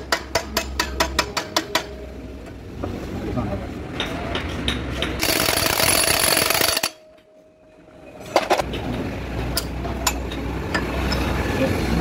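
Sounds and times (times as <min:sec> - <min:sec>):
impact wrench hammering: 0:00.0 - 0:02.0, 0:04.0 - 0:07.3.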